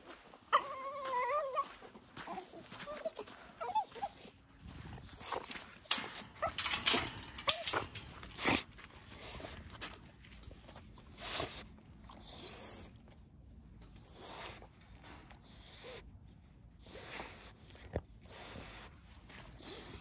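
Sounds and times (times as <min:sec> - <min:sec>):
dog whining: 0:00.5 - 0:01.7, 0:02.3 - 0:04.3, 0:05.1 - 0:09.7, 0:12.2 - 0:12.9, 0:14.0 - 0:14.6, 0:15.4 - 0:16.0, 0:16.8 - 0:17.6, 0:18.3 - 0:18.9, 0:19.5 - 0:20.0
metal pen gate rattling: 0:05.2 - 0:09.6.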